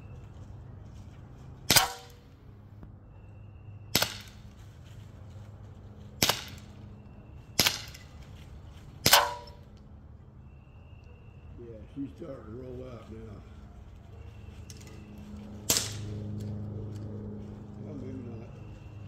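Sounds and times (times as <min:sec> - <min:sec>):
air pistol shots: 0:01.7 - 0:02.2, 0:03.9 - 0:04.4, 0:06.2 - 0:06.7, 0:07.6 - 0:08.1, 0:09.0 - 0:09.6, 0:15.7 - 0:16.1.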